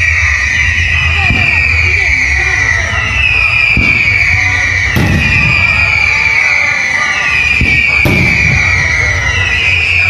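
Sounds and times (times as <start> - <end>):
fireworks bursting: 0.0 - 10.0
high whistling tone: 0.0 - 10.0
sharp bang: 3.6 - 6.2, 7.4 - 9.1.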